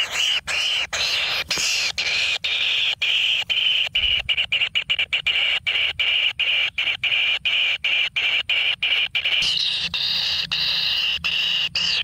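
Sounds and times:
bird chick buzzing begging call: 0:00.0 - 0:12.0.

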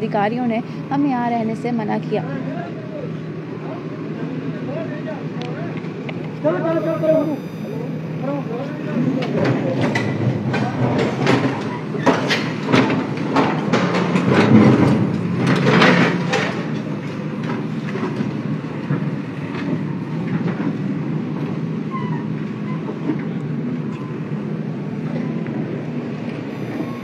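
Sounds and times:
diesel engine under load: 0:00.0 - 0:27.0.

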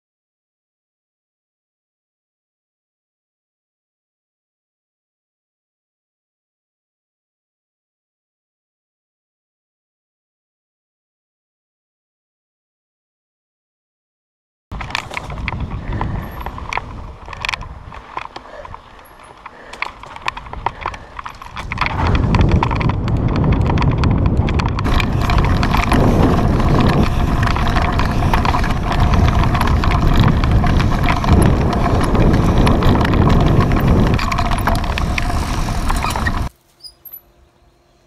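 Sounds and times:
bike clattering over bumps: 0:14.7 - 0:36.5
wind buffeting microphone: 0:14.7 - 0:36.5.

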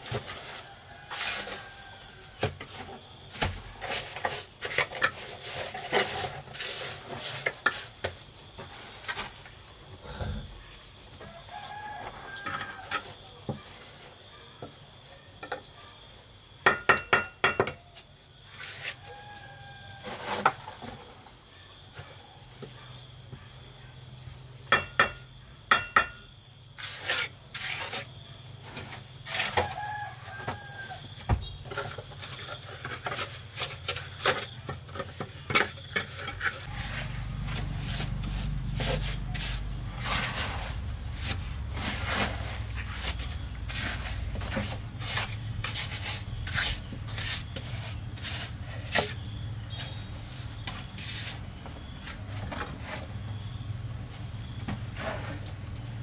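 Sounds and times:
trowel scraping and knocking: 0:00.0 - 0:09.4, 0:24.7 - 0:53.4, 0:54.6 - 0:55.6
high insect whine: 0:00.0 - 0:56.0.

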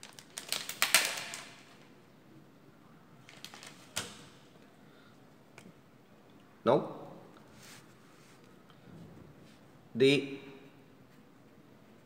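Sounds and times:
paper rustling: 0:03.2 - 0:04.2.

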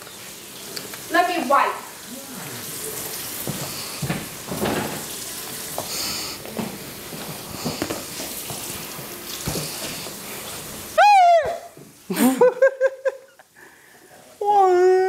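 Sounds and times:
tap water running: 0:00.0 - 0:14.5
high-pitched cry: 0:11.0 - 0:11.8.

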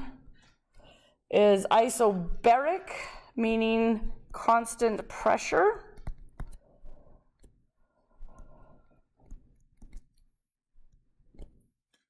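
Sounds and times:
stylus tapping and scratching screen: 0:03.4 - 0:12.0.

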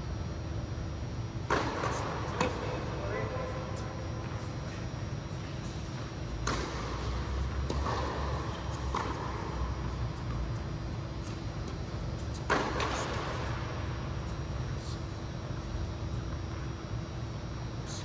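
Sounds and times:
low hum of hall: 0:00.0 - 0:18.0
tennis ball struck by rackets: 0:01.4 - 0:02.8, 0:06.2 - 0:10.6, 0:11.2 - 0:14.2
tennis ball bouncing on hard court: 0:01.4 - 0:03.4, 0:04.2 - 0:14.9.

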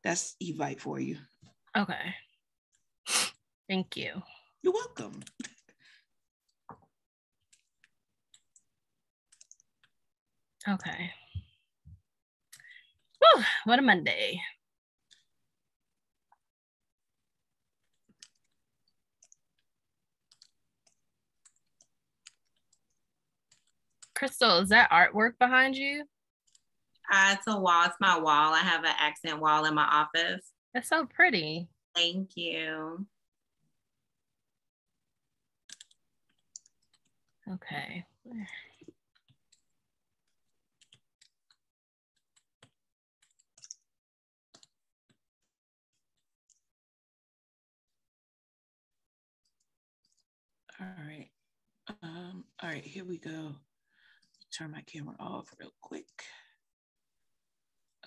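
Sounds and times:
keyboard and mouse clicks: 0:35.7 - 0:37.1.

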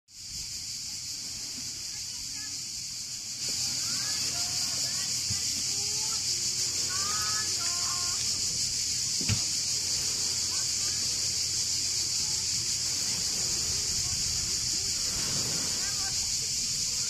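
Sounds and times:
cicada chorus buzzing: 0:00.1 - 0:17.0
faint voices: 0:00.8 - 0:17.0
knock: 0:09.2 - 0:09.4.

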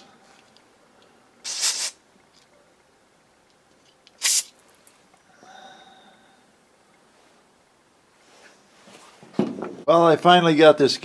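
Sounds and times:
aerosol spray hissing: 0:01.4 - 0:02.0, 0:04.2 - 0:04.5.

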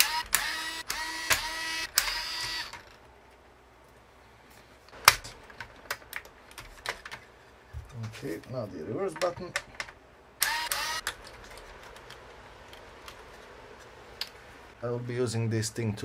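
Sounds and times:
electric screwdriver whirring: 0:00.0 - 0:02.9, 0:10.4 - 0:11.2.

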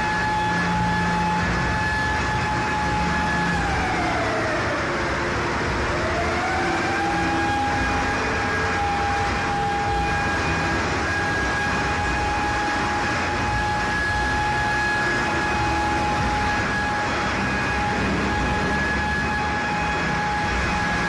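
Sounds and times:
furnace roaring: 0:00.0 - 0:21.0
siren-like whine: 0:00.0 - 0:21.0.

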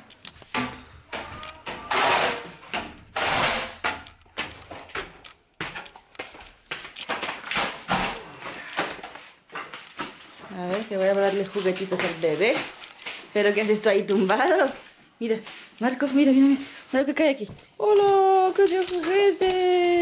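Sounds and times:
boards scraping over wooden floor: 0:00.6 - 0:03.9.

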